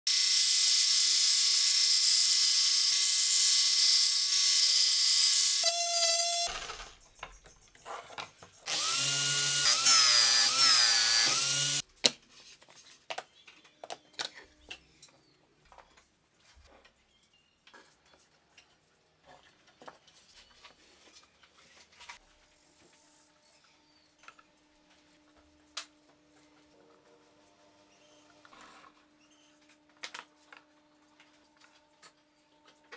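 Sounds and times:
band saw cutting wood: 0.1s - 6.5s, 8.7s - 11.8s
scroll saw cutting wood: 0.1s - 6.9s, 8.7s - 11.8s.

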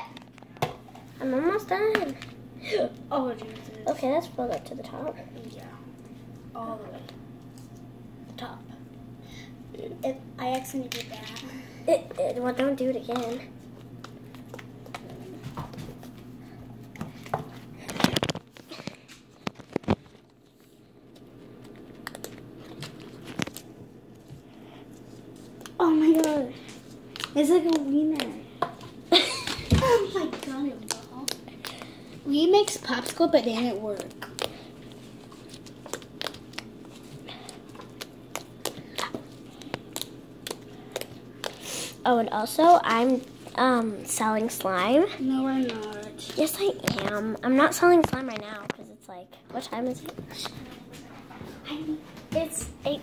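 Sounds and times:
slime squishing with sticky clicks: 25.4s - 29.6s, 30.3s - 41.6s.

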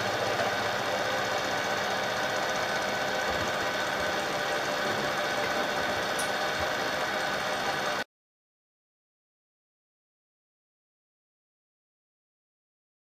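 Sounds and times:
milling machine cutting steel: 0.0s - 8.0s.

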